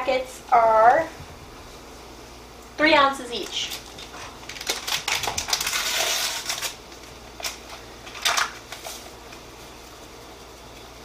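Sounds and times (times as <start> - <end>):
paper packet tearing and crinkling: 3.5 - 9.2.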